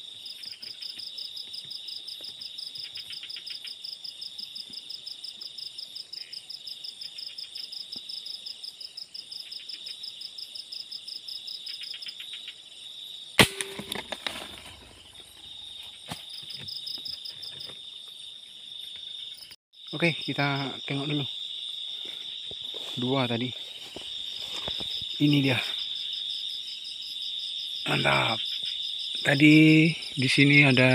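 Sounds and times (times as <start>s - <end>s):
crickets trilling: 0.0s - 30.9s
air rifle shot: 13.4s - 14.1s
knocks and rustling in foliage: 13.4s - 17.8s, 22.5s - 25.2s.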